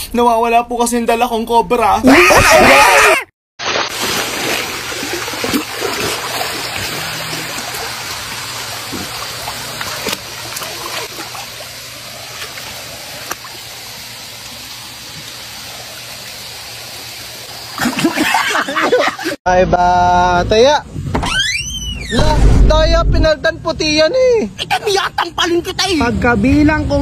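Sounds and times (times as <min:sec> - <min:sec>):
pool water sloshing: 0:03.6 - 0:19.4.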